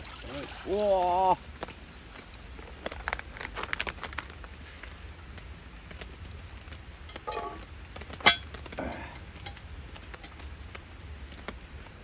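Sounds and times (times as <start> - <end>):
iron lid clanking on pot: 7.1 - 7.6, 8.2 - 8.5.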